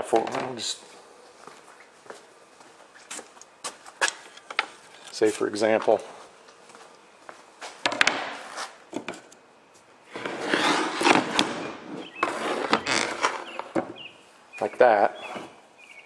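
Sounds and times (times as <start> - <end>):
wood scraping on glass: 10.1 - 13.8.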